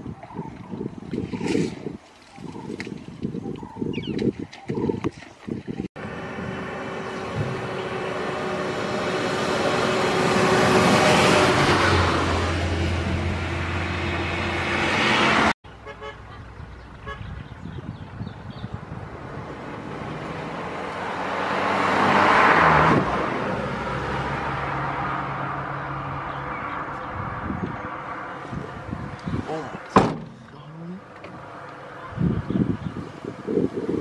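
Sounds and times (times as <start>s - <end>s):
vehicle engine and tyre noise: 0.0s - 34.0s
horn tooting: 15.8s - 16.4s, 17.0s - 17.5s.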